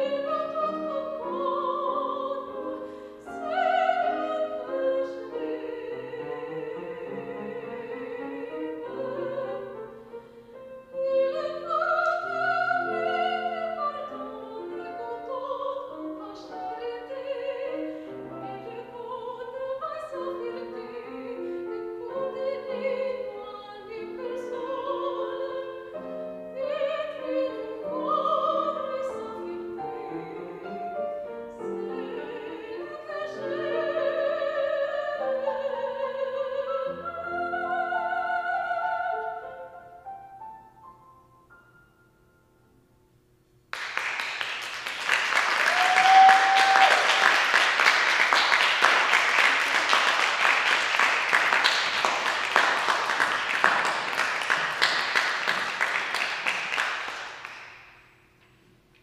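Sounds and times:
woman singing opera: 0.0 - 10.1, 10.7 - 39.8, 45.3 - 55.0
grand piano accompaniment: 0.0 - 43.0, 43.8 - 58.2
audience applauding: 43.7 - 58.0.

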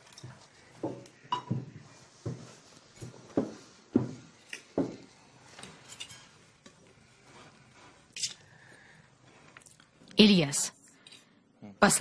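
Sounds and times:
cutlery clinking and scraping on plates: 2.3 - 6.9.

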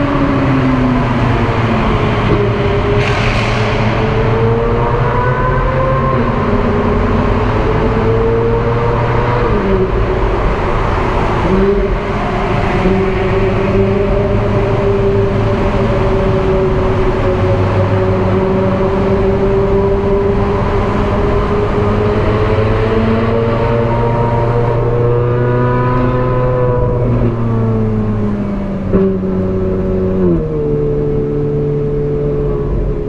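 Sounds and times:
road and wind noise: 0.0 - 33.0
sports car engine at speed: 0.0 - 33.0.

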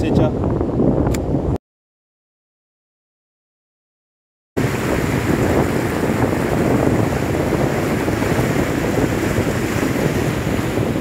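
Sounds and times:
wind buffeting microphone: 0.0 - 1.6, 4.6 - 11.0
surf breaking on beach: 4.6 - 11.0.

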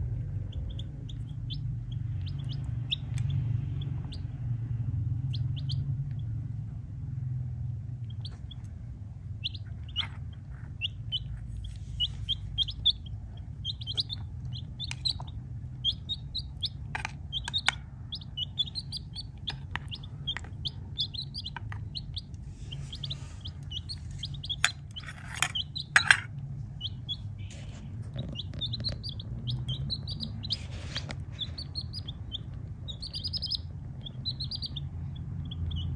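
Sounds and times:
chicks peeping: 0.0 - 35.9
low steady hum: 0.0 - 35.9
sharp clicks and taps: 18.6 - 22.4.

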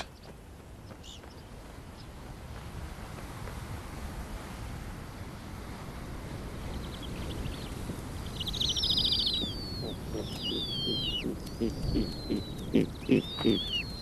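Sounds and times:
owlets high-pitched calls: 8.7 - 14.0.

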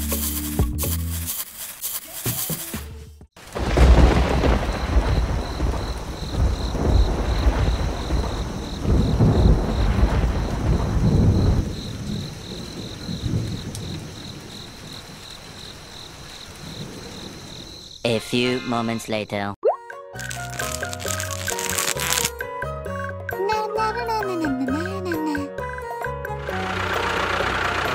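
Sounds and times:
heavy rain: 3.4 - 17.8
thunder rumbling: 3.4 - 17.9.

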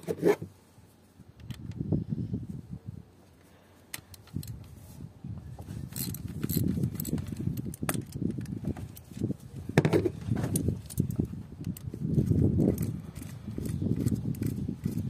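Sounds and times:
plastic fittings clicking and rattling: 3.9 - 4.7, 5.7 - 9.2, 9.8 - 15.0.

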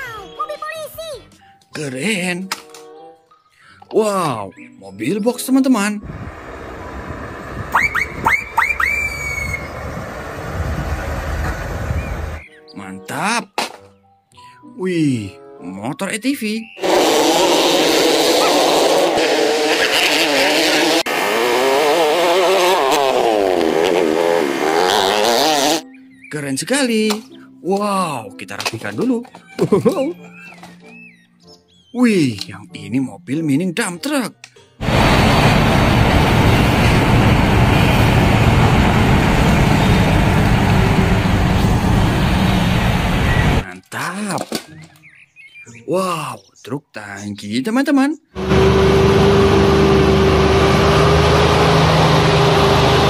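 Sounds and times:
quad bike engines revving: 16.8 - 25.8, 34.8 - 43.6, 48.4 - 53.0
heavy mining machinery rumble: 34.8 - 43.6.

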